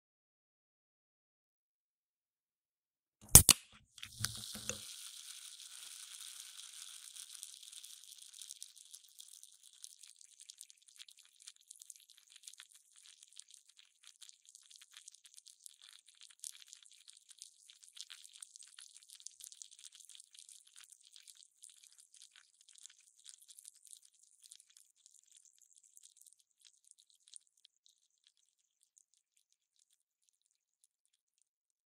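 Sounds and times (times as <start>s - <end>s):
can ring-pull clicks: 3.3s - 4.9s
fizzing carbonation bubbles: 4.0s - 29.9s.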